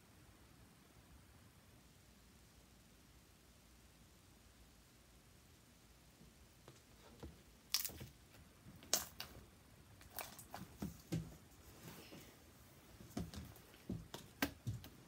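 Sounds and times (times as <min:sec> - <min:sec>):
slime squelching and popping: 0:08.8 - 0:09.4, 0:10.0 - 0:11.2.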